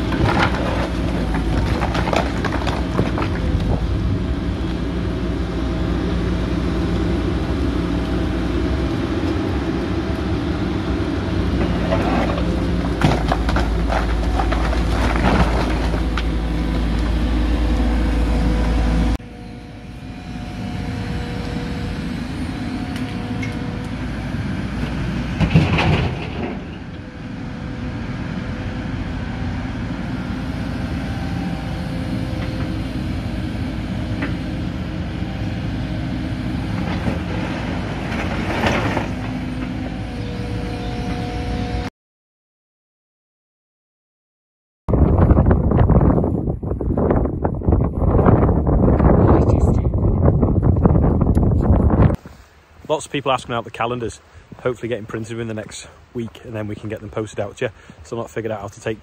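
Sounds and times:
heavy demolition knocks and crashes: 0.0 - 4.0, 11.5 - 17.4, 25.0 - 26.9, 36.7 - 39.9
excavator diesel engine: 0.0 - 41.9
hydraulic hum: 0.0 - 41.9.

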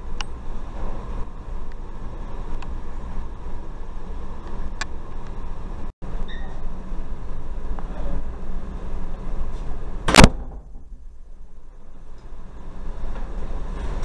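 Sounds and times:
steady low rumble: 0.0 - 14.0
sharp loud knock: 10.1 - 10.9.

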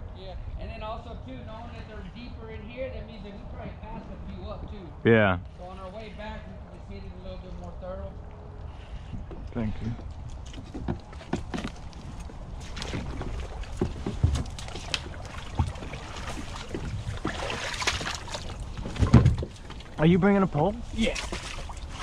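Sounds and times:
rustling of branches: 5.5 - 22.0
kayak hulls bumping and scraping: 8.8 - 22.0.

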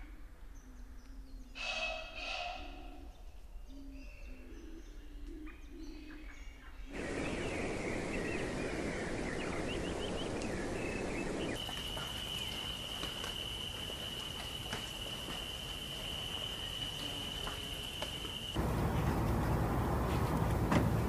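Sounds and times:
bird chirps: 2.4 - 13.6
dense noisy ambience: 6.9 - 21.0
high insect-like drone: 12.0 - 18.7.

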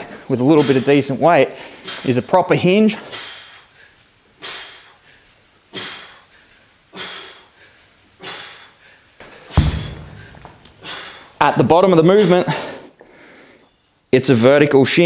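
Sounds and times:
sharp breaths out: 3.0 - 11.4
kettlebell thud on rubber floor: 9.5 - 10.6.

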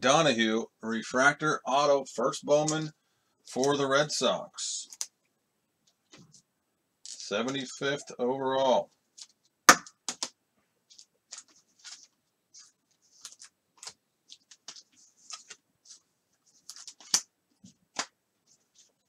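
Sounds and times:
trading cards clicking and rustling: 9.2 - 19.0.

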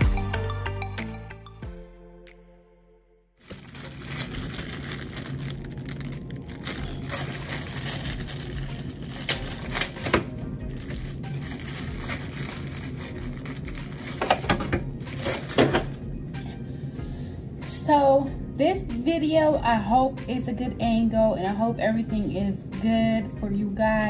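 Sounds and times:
plastic wrapping crinkling: 3.4 - 16.1
low hum: 3.4 - 22.9.

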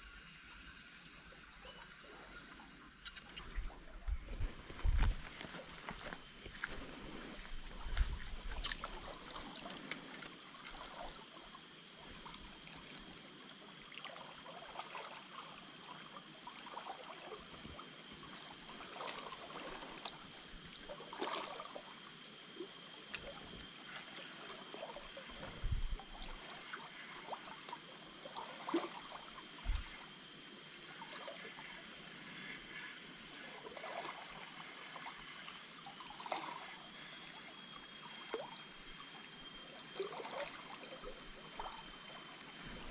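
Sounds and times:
high-pitched hiss: 0.0 - 13.8, 21.8 - 33.6
water trickling: 4.4 - 13.1.

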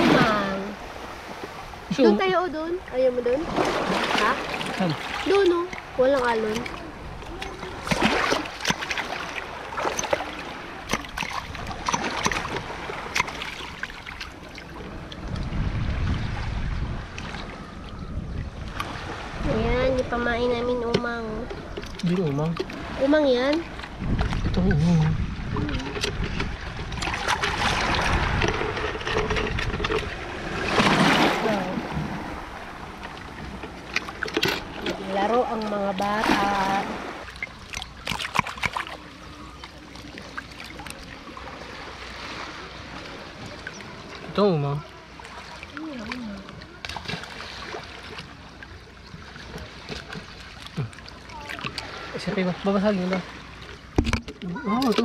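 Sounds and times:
seawater splashing and sloshing: 0.0 - 55.0.

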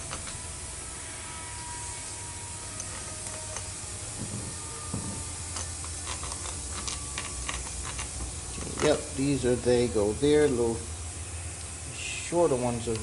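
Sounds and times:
low hum: 0.0 - 13.0
workshop hiss: 0.0 - 13.0
metal parts clicking: 5.4 - 9.4.

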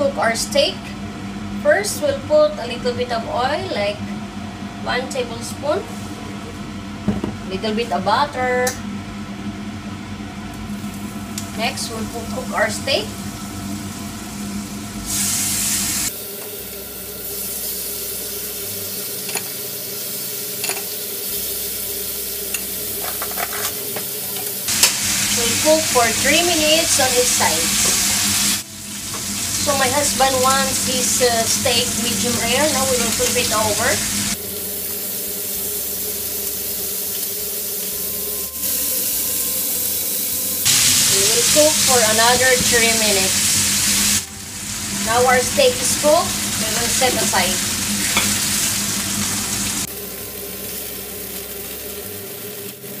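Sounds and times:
steak sizzling in a frying pan: 13.0 - 53.0.

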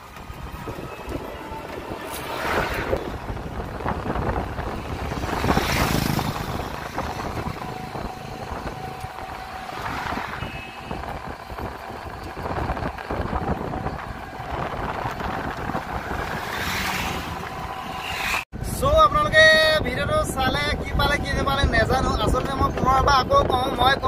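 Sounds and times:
vehicle road and engine noise: 0.0 - 24.0
wind buffeting microphone: 0.0 - 24.0.

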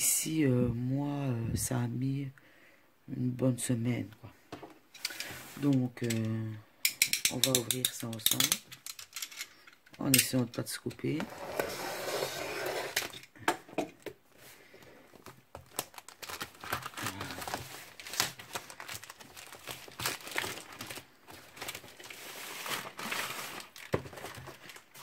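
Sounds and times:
plastic bag crinkling and tearing: 15.2 - 25.0.

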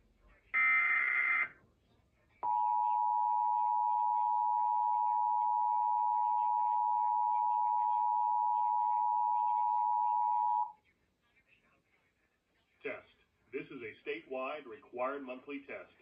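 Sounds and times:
two-tone alert alarm: 0.6 - 1.5, 2.4 - 10.7.

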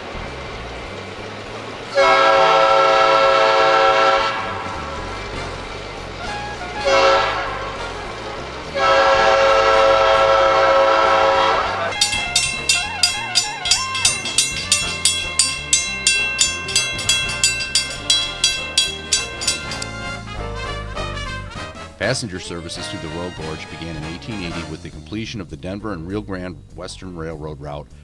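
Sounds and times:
locomotive air horn: 2.0 - 4.7, 6.3 - 11.9
crossing signal bell ringing: 11.9 - 19.9.

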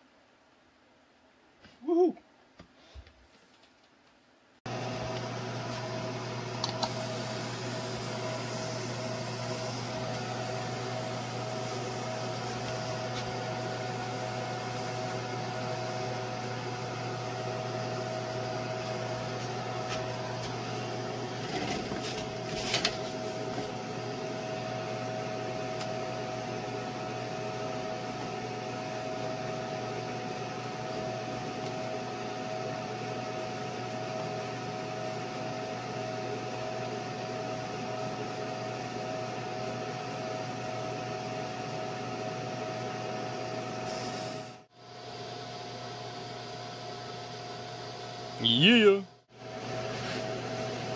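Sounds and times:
laser cutter humming: 4.7 - 43.8.

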